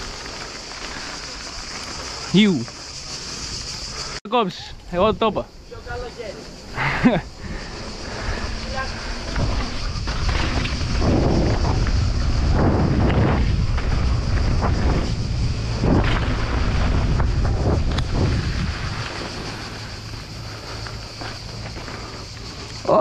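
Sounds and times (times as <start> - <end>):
tyres rolling over dirt and stones: 0.0 - 4.2, 5.9 - 23.0
wind buffeting microphone: 4.8 - 22.8.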